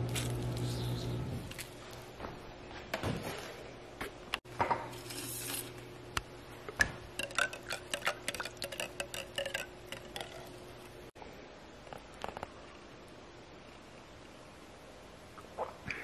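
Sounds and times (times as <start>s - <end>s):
straw clinking against mug: 7.2s - 10.6s.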